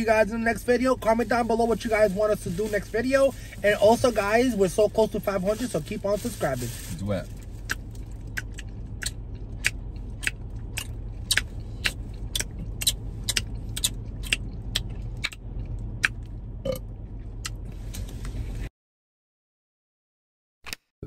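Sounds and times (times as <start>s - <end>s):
low car cabin hum: 0.0s - 18.7s.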